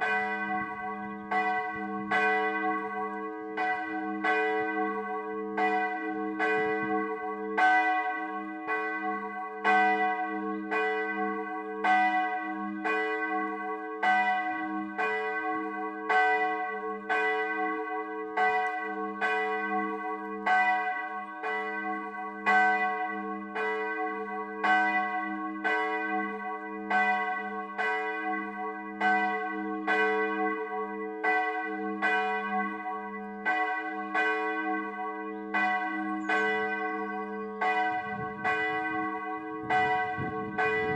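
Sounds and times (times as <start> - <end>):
church bell tolling: 0.0 - 40.9.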